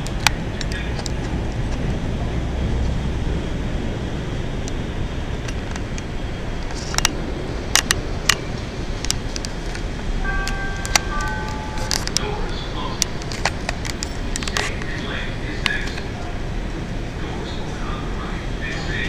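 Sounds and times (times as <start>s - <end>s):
train rumbling: 0.0s - 19.0s
wheels clacking on track: 0.0s - 19.0s
steady high tones: 9.9s - 17.6s.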